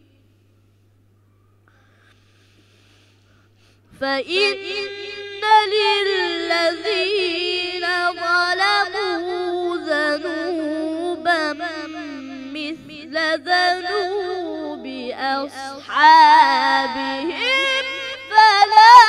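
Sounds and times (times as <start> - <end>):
boy chanting melodic recitation: 4.0 - 19.0.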